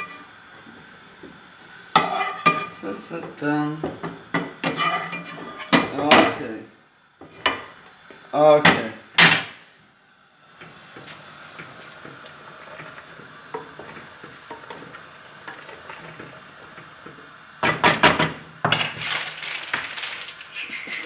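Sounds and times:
boiling water hissing: 0.0 - 21.0
wooden spoon scraping pot: 4.6 - 5.8.

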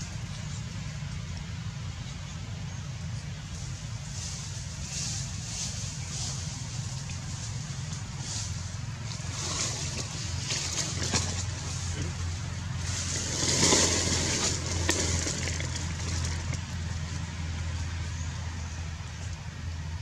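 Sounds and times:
even hiss: 0.0 - 10.8.

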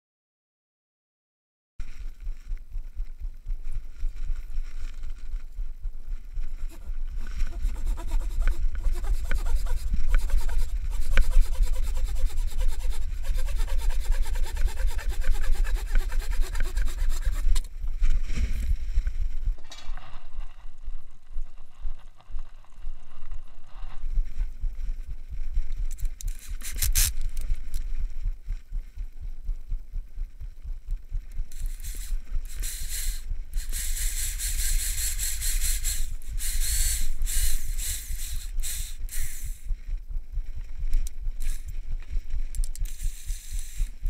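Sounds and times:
handsaw cutting wood: 6.7 - 17.7.

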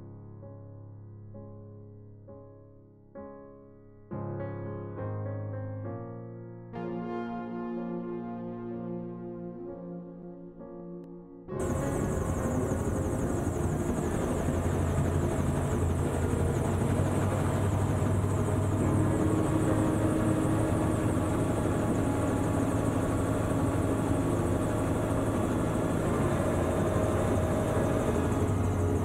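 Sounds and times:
gyroplane engine and propeller running: 11.6 - 29.0.

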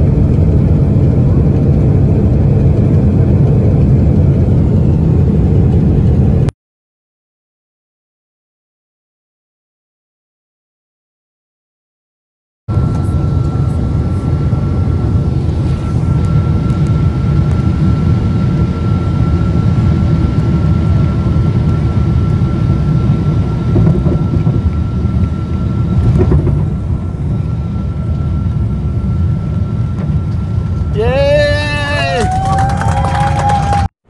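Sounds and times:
low rumble inside aircraft cabin: 0.0 - 6.5, 12.7 - 33.9
thin high whine: 12.7 - 33.8.

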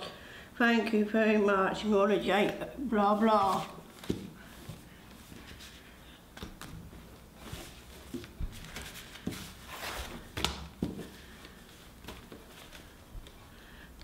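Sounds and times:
paper and cloth rustling: 3.3 - 13.4.

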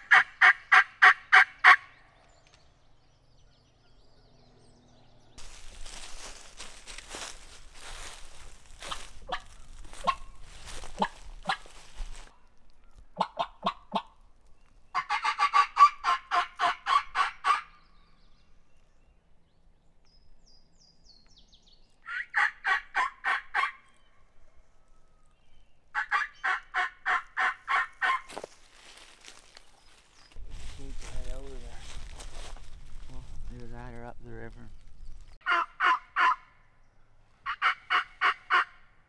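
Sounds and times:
turkey call yelps: 0.0 - 1.9, 8.8 - 12.2, 13.2 - 14.1, 14.9 - 17.8, 22.0 - 23.9, 25.9 - 28.5, 35.4 - 36.6, 37.4 - 38.8.

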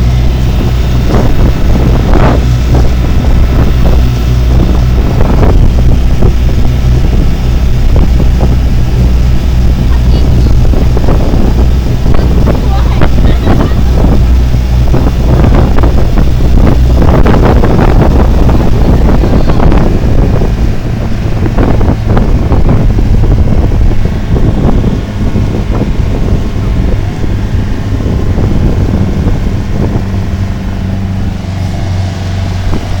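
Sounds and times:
boat engine drone: 0.0 - 33.0
wake churning: 0.0 - 33.0
wind buffeting microphone: 0.0 - 33.0.

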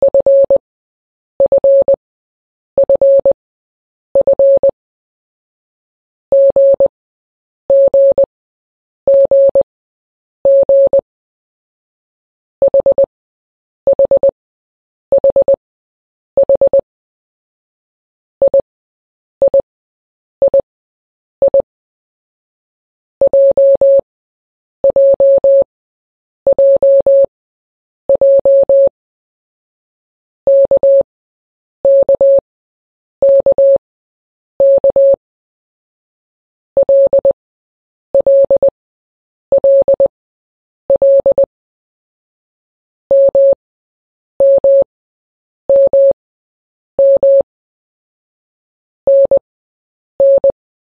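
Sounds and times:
morse code beeps: 0.0 - 0.6, 1.4 - 2.0, 2.8 - 3.4, 4.2 - 4.8, 6.3 - 6.9, 9.1 - 9.7, 10.5 - 11.0, 13.9 - 14.4, 15.2 - 15.6, 16.4 - 16.8, 18.4 - 18.7, 21.4 - 21.7, 23.2 - 24.0, 24.8 - 25.7, 26.5 - 27.3, 28.1 - 28.9, 30.5 - 31.1, 31.9 - 32.4, 33.2 - 33.8, 34.6 - 35.2, 36.8 - 37.4, 38.2 - 38.8, 39.5 - 40.1, 40.9 - 41.5, 43.1 - 43.6, 44.4 - 44.9, 45.7 - 46.2, 47.0 - 47.5, 49.1 - 49.4, 50.2 - 50.6.

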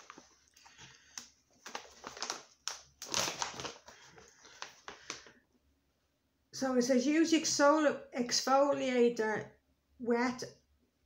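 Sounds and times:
plastic packaging crinkling: 0.0 - 5.4.

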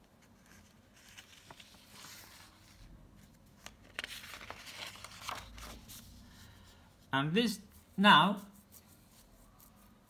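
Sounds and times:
paper rustling: 0.0 - 6.8.

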